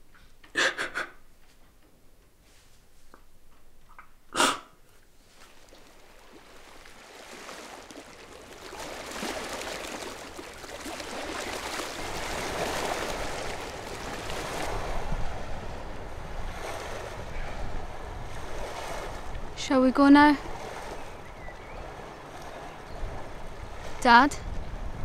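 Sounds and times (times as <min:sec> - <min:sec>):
wind and waves rushing: 0:05.2 - 0:25.0.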